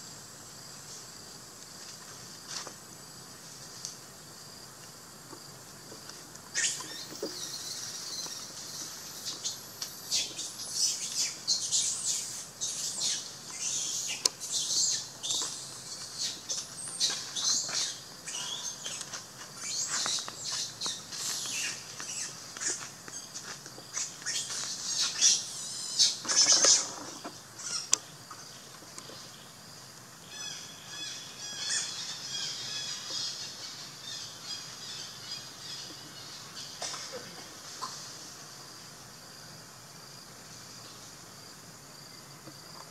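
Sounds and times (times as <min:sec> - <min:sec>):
animal chirps and squeals: 0:06.5 - 0:07.9, 0:24.0 - 0:28.0, 0:30.4 - 0:33.4.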